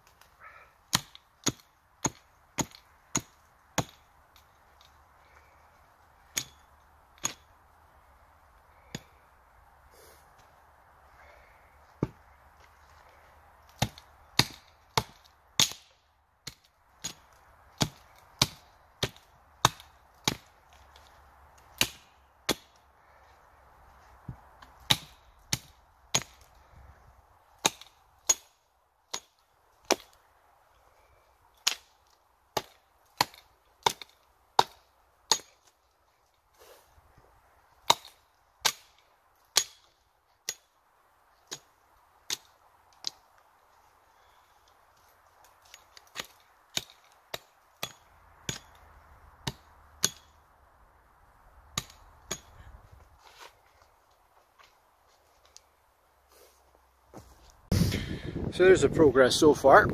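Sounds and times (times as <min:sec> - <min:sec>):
hatchet chopping wood: 0:00.9 - 0:05.0, 0:06.3 - 0:07.5, 0:12.0 - 0:12.2, 0:13.7 - 0:22.8, 0:24.6 - 0:26.7, 0:27.6 - 0:30.2, 0:31.6 - 0:35.7, 0:37.8 - 0:40.7, 0:41.4 - 0:43.2, 0:45.6 - 0:50.4, 0:51.7 - 0:52.7.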